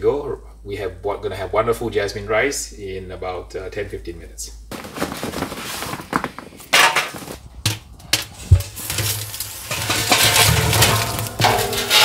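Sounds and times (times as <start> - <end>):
charcoal clattering and crackling: 4.7 - 12.0
chimney starter clanking on metal drum: 8.1 - 12.0.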